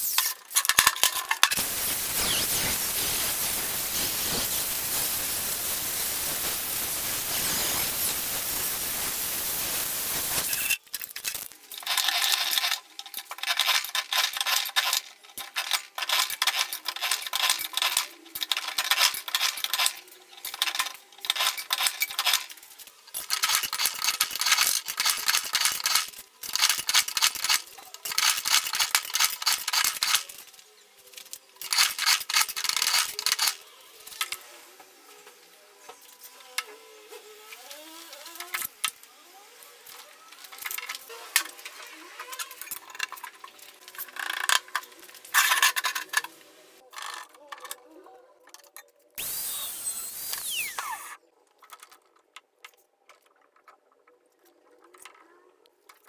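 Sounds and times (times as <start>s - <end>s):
steady hiss: 1.6s - 10.8s.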